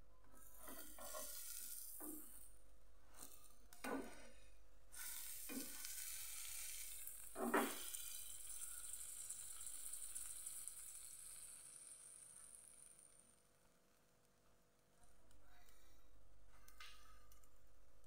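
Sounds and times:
fat sizzling in a frying pan: 0.5 - 14.0.

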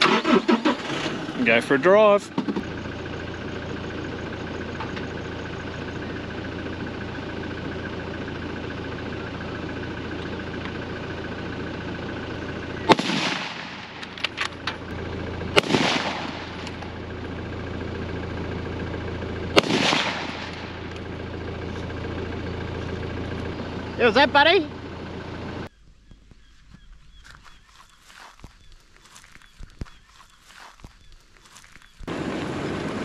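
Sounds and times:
vehicle engine idling: 0.0 - 33.0
echoing gunshots: 12.8 - 14.2, 15.5 - 16.8, 19.5 - 20.9.

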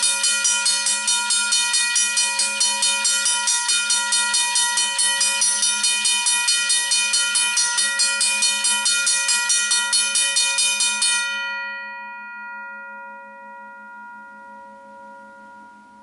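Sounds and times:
railway crossing bell ringing: 0.0 - 16.0.

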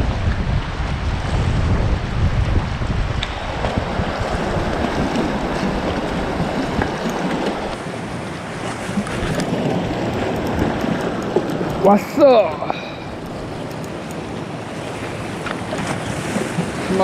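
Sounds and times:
waves breaking on rocks: 0.0 - 17.0
wind buffeting microphone: 0.0 - 17.0.

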